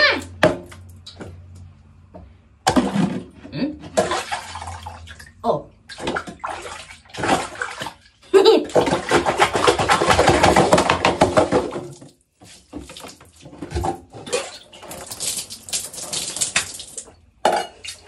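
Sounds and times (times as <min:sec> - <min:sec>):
water splashing in a metal pot: 0:03.9 - 0:18.0
water pouring out: 0:14.3 - 0:17.1.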